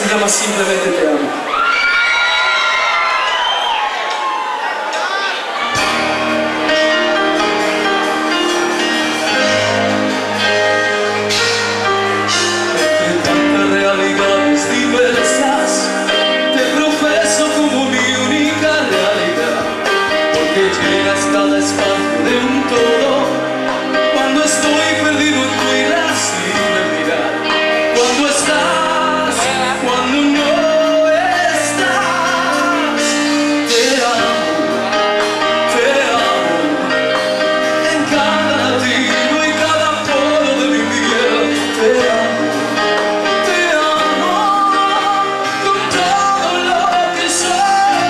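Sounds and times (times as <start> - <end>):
hard rock band playing: 0.0 - 48.0
man singing: 12.3 - 48.0.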